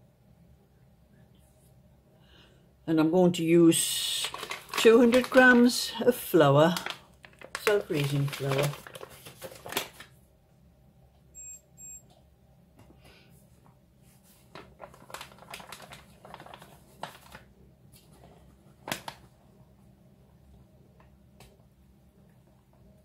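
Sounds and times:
paper bag rustling: 0:04.1 - 0:10.1, 0:14.1 - 0:19.4
short electronic beeps: 0:11.4 - 0:12.0.

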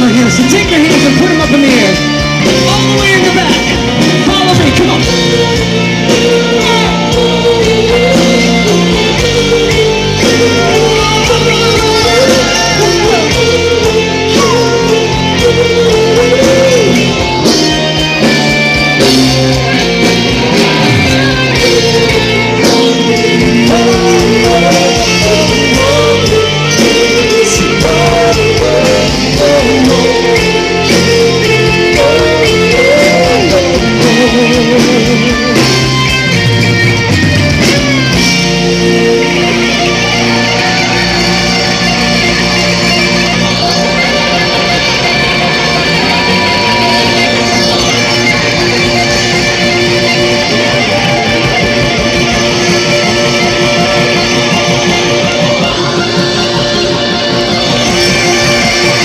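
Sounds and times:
person singing: 0:00.0 - 0:36.7
bass guitar: 0:00.0 - 0:59.0
drums: 0:00.0 - 0:59.0
electric guitar: 0:00.0 - 0:59.0.

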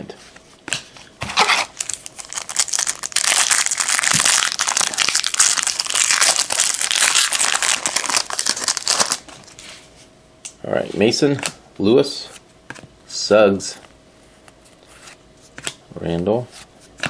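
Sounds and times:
foil wrapper crinkling and tearing: 0:01.4 - 0:09.3.

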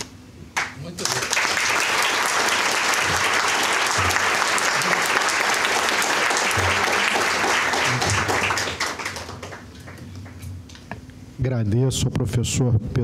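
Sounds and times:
audience applauding: 0:00.6 - 0:10.5.

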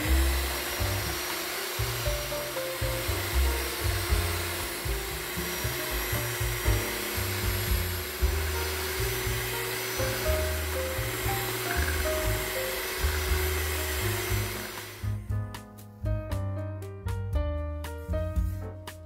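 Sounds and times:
electric hand mixer whisking: 0:00.0 - 0:15.2.

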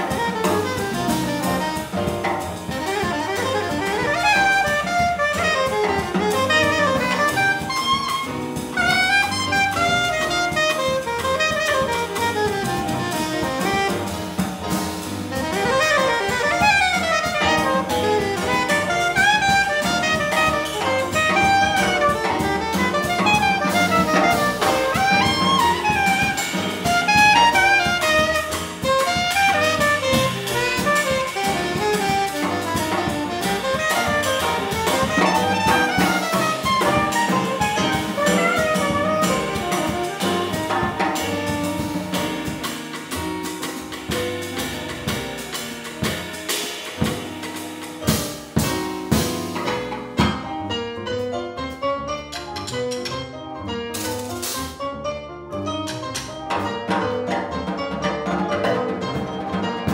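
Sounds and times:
soprano saxophone solo: 0:00.0 - 0:14.4, 0:15.3 - 0:42.7
drum kit with cymbals: 0:00.0 - 0:54.9, 0:55.7 - 0:59.9
double bass: 0:00.0 - 0:59.9.

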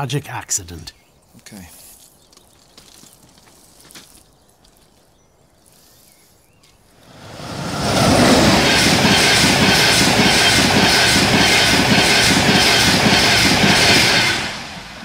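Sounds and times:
train wheels clattering over rails: 0:07.4 - 0:15.0.

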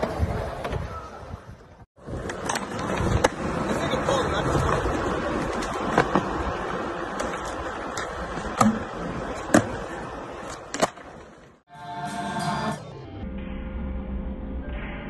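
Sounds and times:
skateboard wheels rolling on concrete: 0:00.0 - 0:11.6
skateboard clacking: 0:02.1 - 0:11.6.

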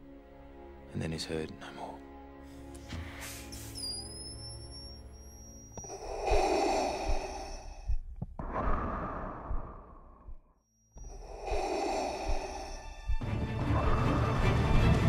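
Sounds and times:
mechanical respirator breathing: 0:02.9 - 0:04.4, 0:05.5 - 0:10.3, 0:11.0 - 0:14.2.

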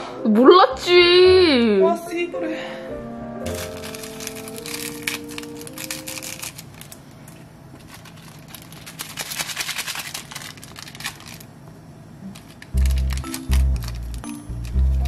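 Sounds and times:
plastic packet crinkling: 0:03.5 - 0:11.6, 0:12.2 - 0:15.0.

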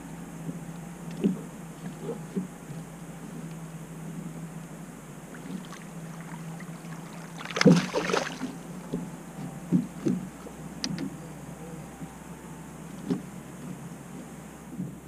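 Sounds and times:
steady low hum: 0:00.0 - 0:15.0
fish thrashing and splashing: 0:05.2 - 0:10.8.

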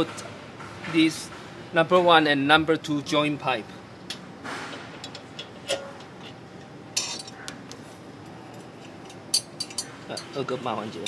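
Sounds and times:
metal exhaust pipes clinking: 0:04.7 - 0:07.4, 0:08.5 - 0:11.0.

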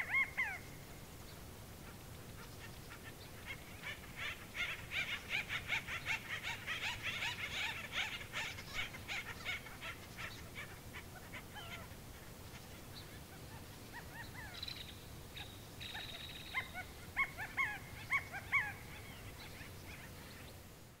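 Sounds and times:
sharp animal calls: 0:15.4 - 0:19.4.

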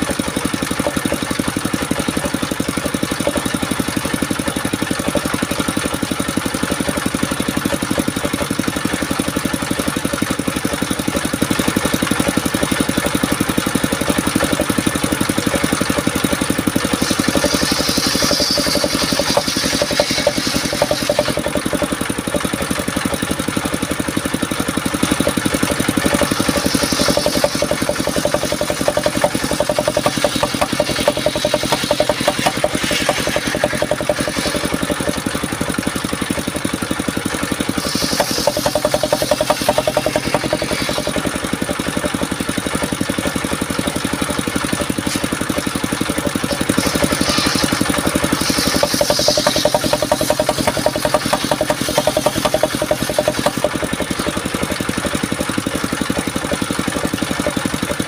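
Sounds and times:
sawmill engine drone: 0:00.0 - 0:58.0
saw blade ripping through log: 0:16.4 - 0:22.1, 0:25.4 - 0:35.6, 0:37.7 - 0:41.6, 0:44.8 - 0:54.2.

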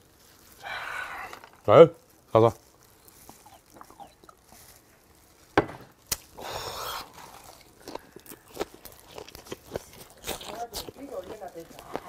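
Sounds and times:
chewing clicks: 0:03.0 - 0:04.5, 0:07.2 - 0:12.0
bottle set down on a table: 0:05.6 - 0:05.9.

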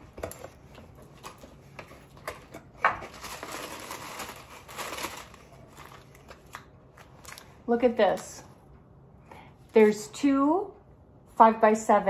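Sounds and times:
packaging rustling: 0:00.1 - 0:07.5.

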